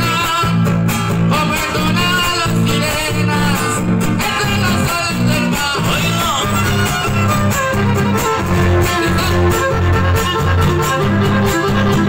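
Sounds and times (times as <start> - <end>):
latin dance music: 0.0 - 12.0.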